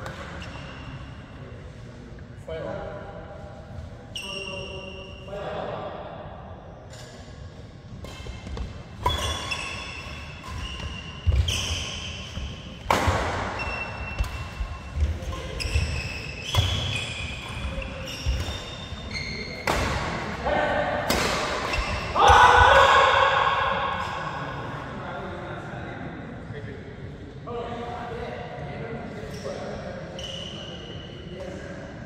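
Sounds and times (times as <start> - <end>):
shoes squeaking on court: 8.0 - 19.9
rackets striking shuttlecock: 12.8 - 15.8.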